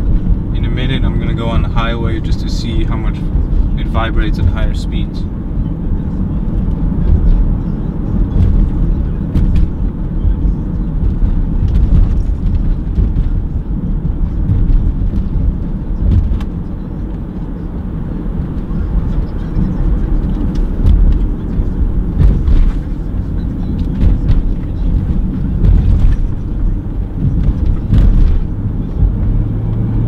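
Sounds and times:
engine and tyres rumbling: 0.0 - 30.0
light knocks and rattles: 18.4 - 29.4.

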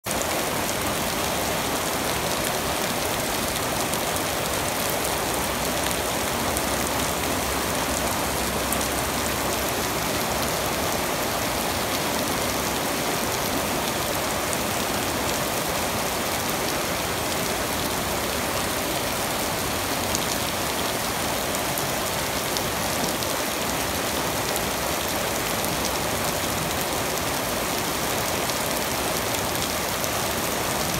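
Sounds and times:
flooded stream rushing: 0.0 - 30.9
rain pattering: 0.1 - 30.9.

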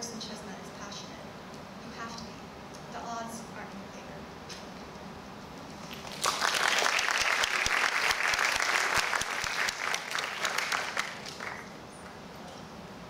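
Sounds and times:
audience applauding: 5.9 - 11.8.

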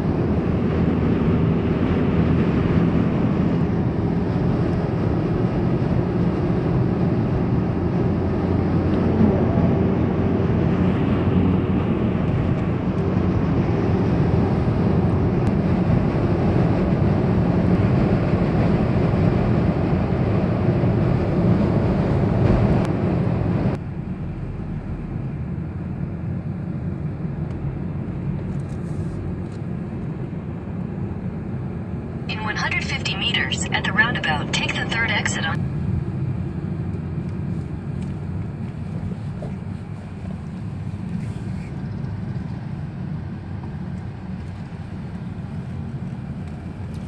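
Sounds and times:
road and tyre noise: 0.0 - 47.0
car engine hum: 22.8 - 29.2.

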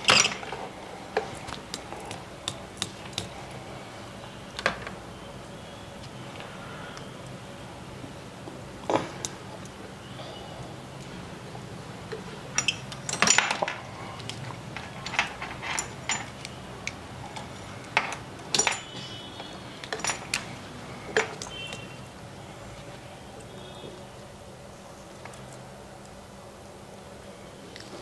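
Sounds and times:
metal tools clinking on bench: 0.1 - 0.6, 12.5 - 13.9, 14.7 - 16.6, 18.0 - 20.5.

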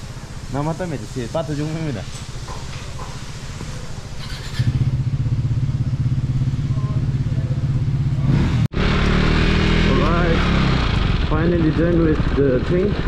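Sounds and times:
motorcycle engine idling: 3.7 - 8.4.

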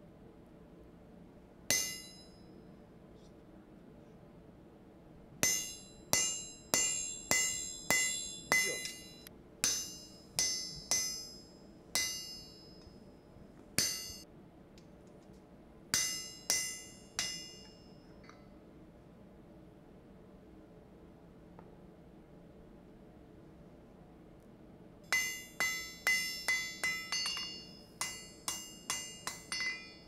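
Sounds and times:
hammer striking metal punch: 1.7 - 2.4, 5.4 - 12.9, 13.8 - 14.2, 16.0 - 17.8, 25.1 - 30.0.

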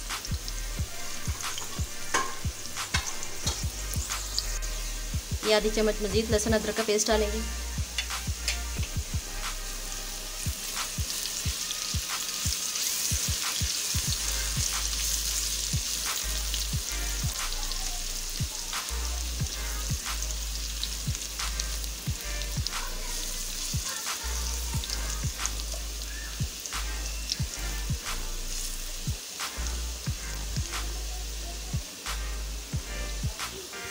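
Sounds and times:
onions sizzling in hot oil: 0.0 - 33.9
spatula scraping metal pan: 1.0 - 5.0.

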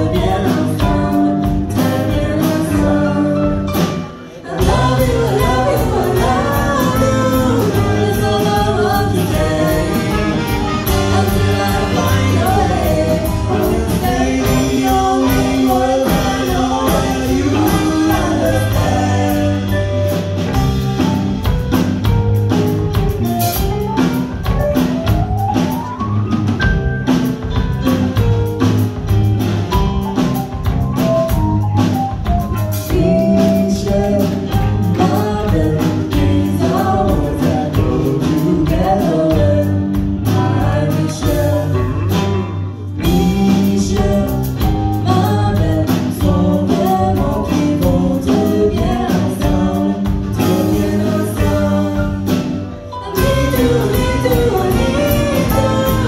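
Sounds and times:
live band with singing: 0.0 - 56.0.

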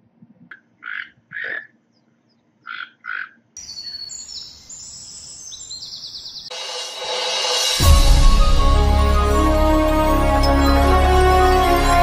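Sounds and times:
raspy animal calls: 0.5 - 1.8, 2.6 - 3.4
electronic music with chimes: 6.5 - 12.0.

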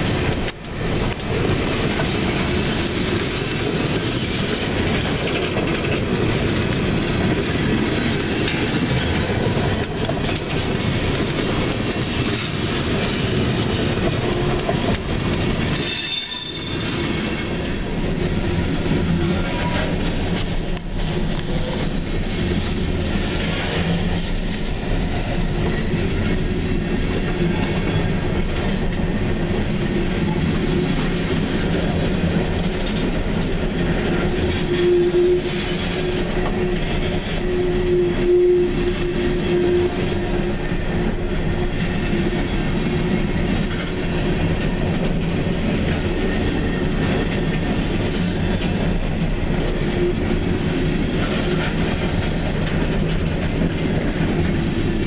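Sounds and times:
freight train wheels rumbling: 0.0 - 55.0
wheel squeal: 15.6 - 17.8, 34.0 - 40.8, 43.0 - 44.4.

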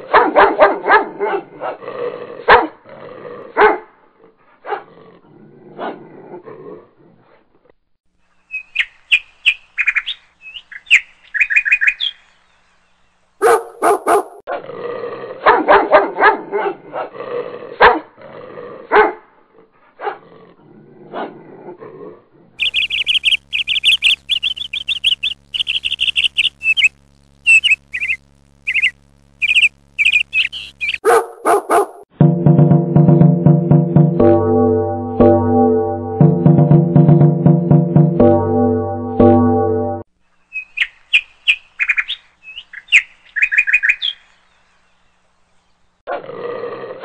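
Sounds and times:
puppies barking: 13.4 - 14.4, 29.5 - 32.1
low steady hum: 22.6 - 31.0
high chirping squeaks: 22.6 - 31.1
music: 32.2 - 40.0.

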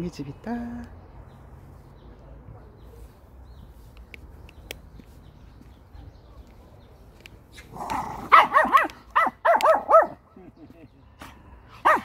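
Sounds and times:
small dog yapping: 7.8 - 10.2.

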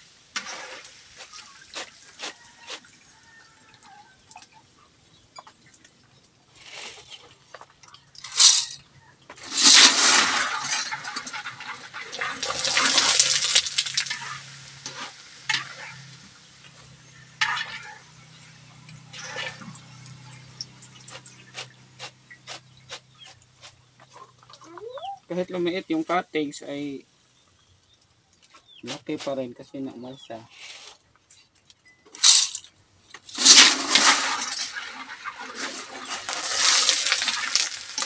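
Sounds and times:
oil sizzling in a wok: 0.0 - 3.6, 9.4 - 22.3, 33.4 - 38.0.

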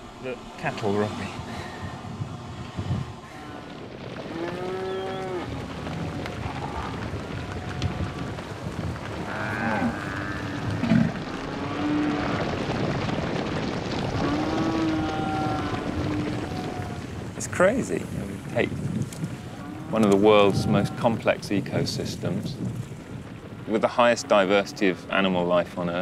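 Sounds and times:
moving herd noise: 2.8 - 25.2
cattle mooing: 4.3 - 5.5, 9.2 - 12.4, 14.2 - 17.0, 19.4 - 21.0.

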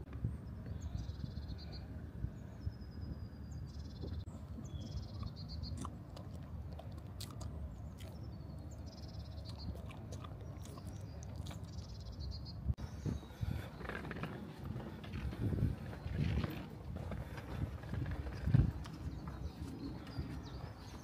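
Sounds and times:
low rumbling background: 0.0 - 21.0
birds trilling: 0.5 - 21.0
dog chewing and crunching: 5.2 - 8.3, 9.4 - 12.0.

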